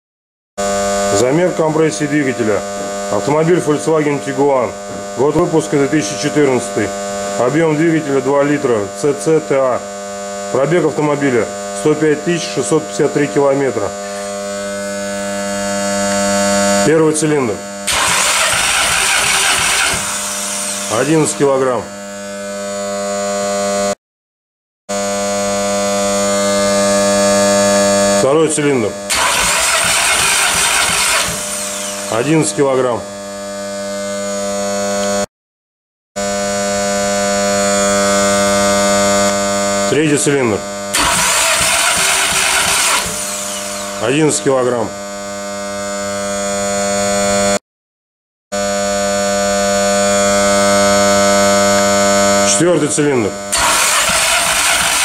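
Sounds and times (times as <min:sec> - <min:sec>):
electric motor turning engine: 0:17.9 - 0:21.8, 0:29.1 - 0:32.6, 0:40.9 - 0:44.5, 0:53.5 - 0:55.0.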